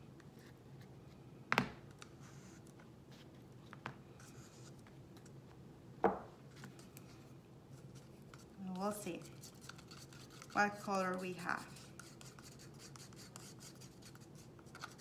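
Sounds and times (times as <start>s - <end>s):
spatula scraping paste: 7.7s - 15.0s.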